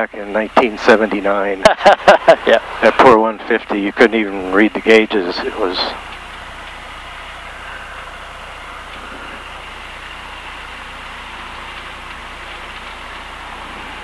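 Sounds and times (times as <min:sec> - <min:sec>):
airplane engine and propeller running: 0:00.0 - 0:14.0.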